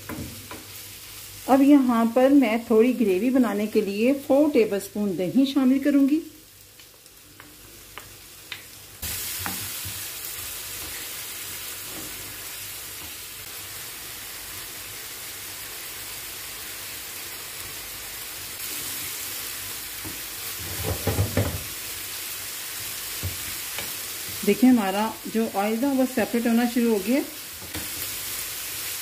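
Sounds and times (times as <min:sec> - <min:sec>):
chicken sizzling in oil: 0:05.3 - 0:29.0.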